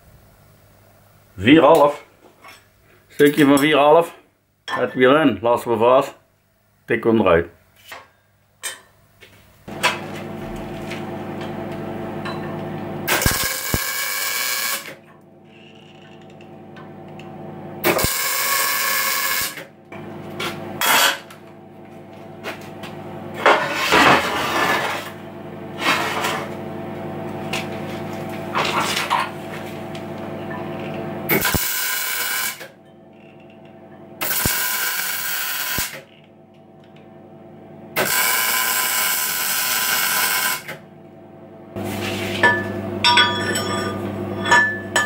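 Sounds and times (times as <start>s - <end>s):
welder humming: 9.7s - 33.6s, 34.2s - 36.0s, 37.8s - 40.8s, 41.7s - 45.0s
crackling welding bursts: 13.1s - 15.0s, 17.8s - 19.6s, 31.3s - 32.7s, 34.2s - 36.0s, 38.0s - 40.7s.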